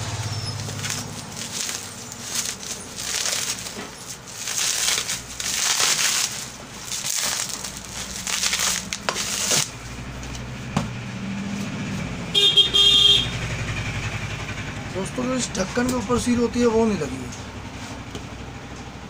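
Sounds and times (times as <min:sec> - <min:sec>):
bubble wrap crinkling: 0:00.0 - 0:10.7.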